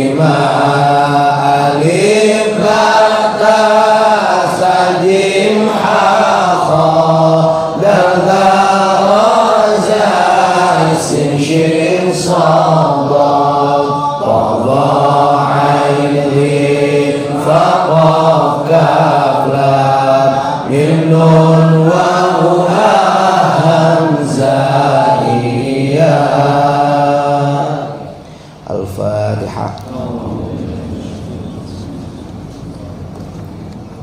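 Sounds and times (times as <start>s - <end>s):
man chanting a devotional melody: 28.6s - 32.0s.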